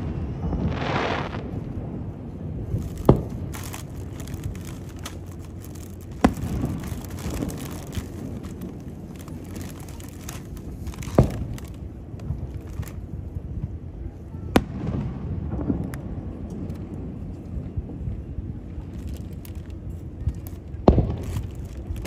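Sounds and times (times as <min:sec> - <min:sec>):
low rumbling noise: 0:00.0 - 0:22.0
firework shells bursting: 0:02.6 - 0:13.1, 0:20.8 - 0:22.0.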